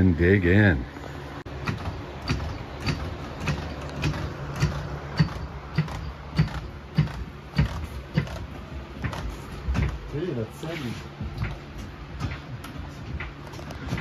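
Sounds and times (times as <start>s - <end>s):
floor jack clanking: 11.3s - 14.0s.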